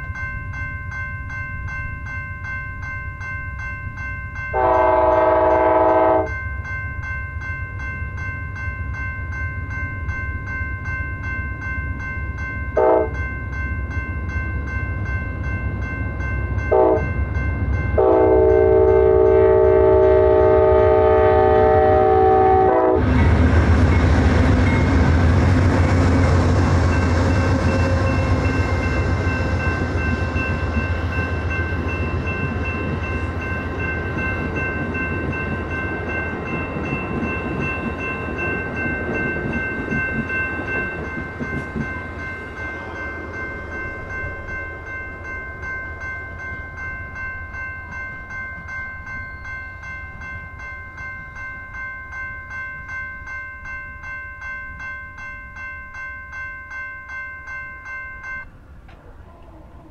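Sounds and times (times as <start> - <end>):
moving train rumble: 0.0 - 59.9
train air horn blasts: 4.5 - 6.3, 12.8 - 13.2, 16.7 - 17.1, 18.0 - 23.2.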